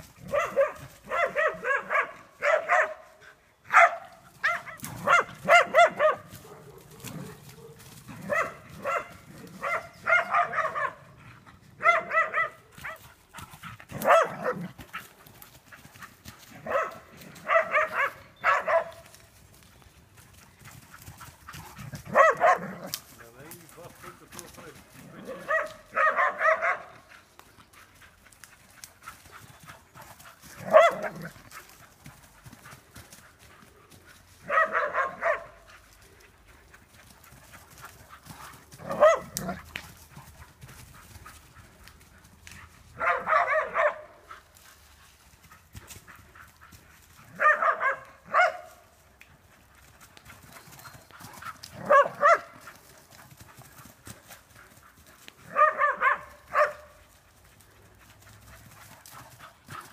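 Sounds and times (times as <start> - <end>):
dog barking: 0.2 - 11.2, 11.8 - 13.0, 13.9 - 15.1, 16.6 - 19.1, 22.0 - 24.2, 25.2 - 27.1, 30.6 - 31.4, 34.4 - 35.7, 38.8 - 39.7, 42.9 - 44.3, 47.2 - 48.8, 51.8 - 52.6, 55.4 - 57.0.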